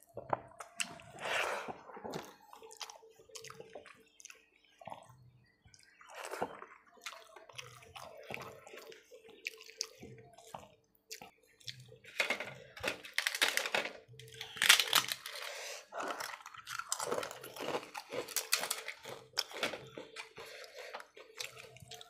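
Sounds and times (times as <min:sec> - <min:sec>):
mouth sounds of eating: 0:00.0 - 0:12.0, 0:15.6 - 0:22.0
papad crackling as broken: 0:12.8 - 0:15.5.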